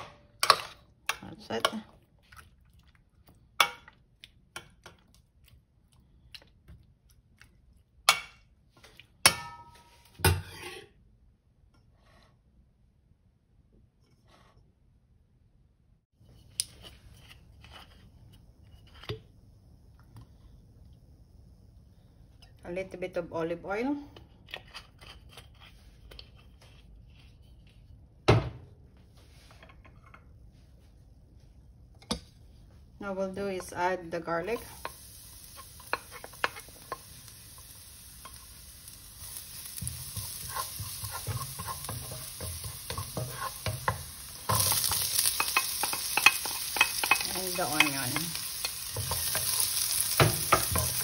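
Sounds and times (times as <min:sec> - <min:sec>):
metal spoon scraping a bowl: 0:10.4 - 0:10.9, 0:39.7 - 0:51.0
spoon clinking on a bowl: 0:41.1 - 0:48.4.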